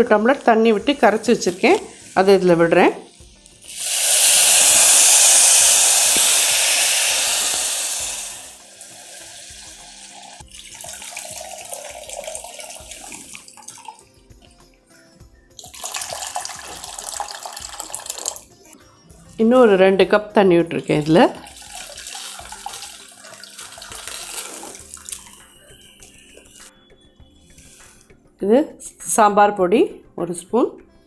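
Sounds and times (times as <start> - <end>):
liquid pouring into a stone pot: 3.6 - 14.0, 15.6 - 18.5, 21.4 - 25.4
water poured from a plastic bottle: 21.5 - 25.4.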